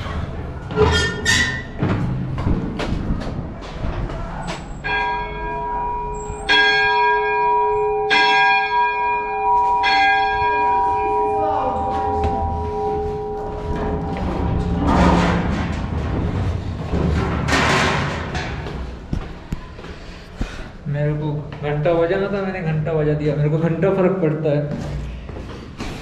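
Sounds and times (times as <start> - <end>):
large church bell ringing: 4.8 - 16.4.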